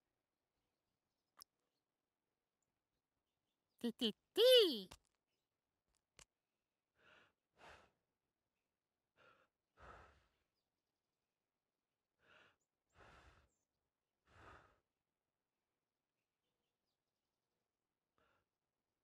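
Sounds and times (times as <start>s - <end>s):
soft breathy puffs: 7.0s - 8.0s, 9.2s - 10.6s, 12.2s - 15.0s.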